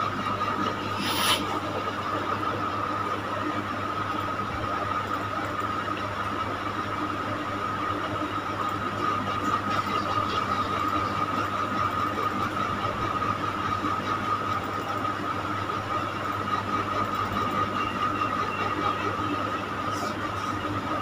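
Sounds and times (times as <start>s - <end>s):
background hum and hiss: 0.0s - 17.8s.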